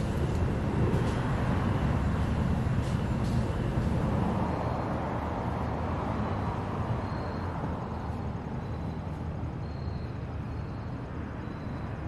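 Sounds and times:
distant road traffic: 0.0s - 12.0s.

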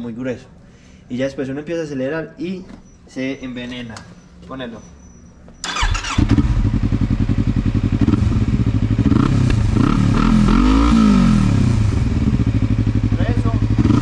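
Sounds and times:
engine revving: 5.6s - 14.0s
motorcycle engine idling: 5.7s - 10.2s, 11.5s - 14.0s.

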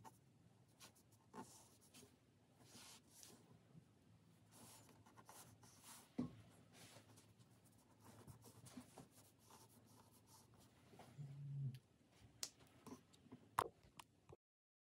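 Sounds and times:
pen scratching on paper: 0.8s - 2.0s, 4.5s - 6.2s, 6.8s - 10.6s.

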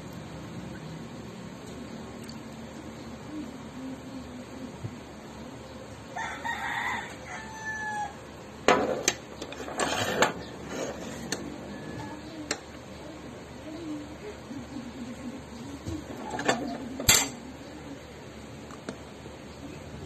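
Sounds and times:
rooster crowing: 6.1s - 8.3s, 11.5s - 12.3s.

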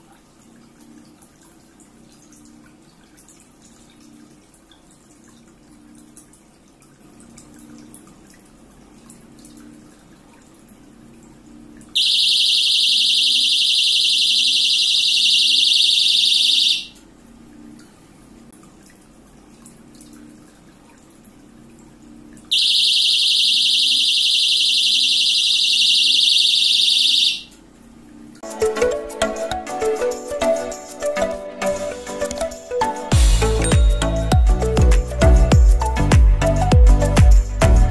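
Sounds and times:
shrill electronic buzzer: 12.0s - 17.0s, 22.5s - 27.5s.

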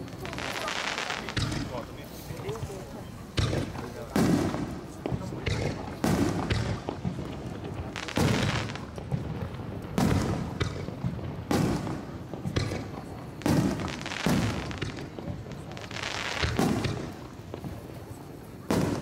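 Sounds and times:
firework shells booming: 0.0s - 19.0s.

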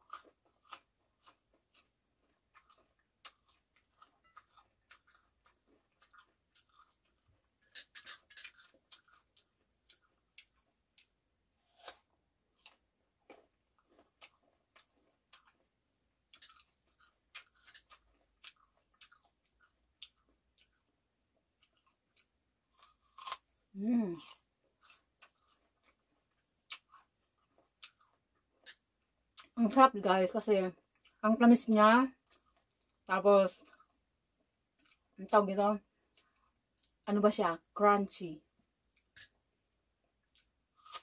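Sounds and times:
crunchy chewing: 0.0s - 15.7s, 16.3s - 28.8s, 40.2s - 41.0s.

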